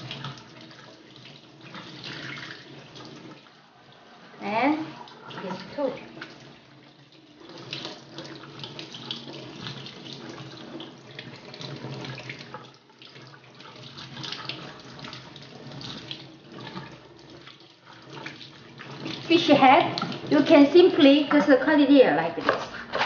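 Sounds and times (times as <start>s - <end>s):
faucet running into steel sink: 0.0s - 22.4s.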